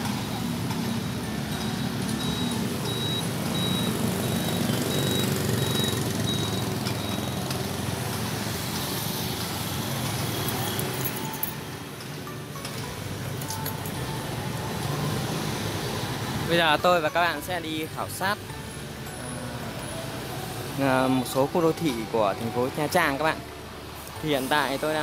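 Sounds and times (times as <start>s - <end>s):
motorbikes and cars passing: 0.0s - 25.0s
faint high beep: 1.6s - 7.4s.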